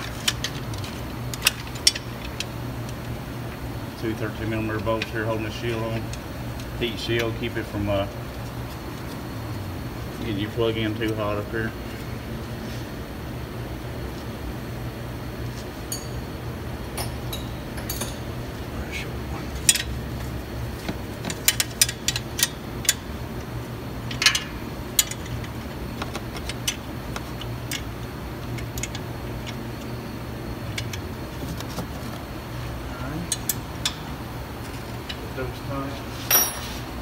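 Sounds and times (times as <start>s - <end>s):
low background hum: 0.0s - 37.0s
metallic clinks of tools on steel: 15.9s - 16.3s, 17.0s - 18.3s.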